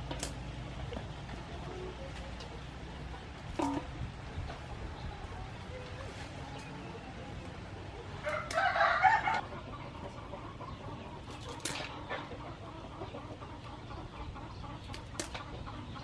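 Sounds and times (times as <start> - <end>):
chicken clucking: 0.9 - 16.0
scissors snipping crabs in metal bowl: 11.4 - 11.9.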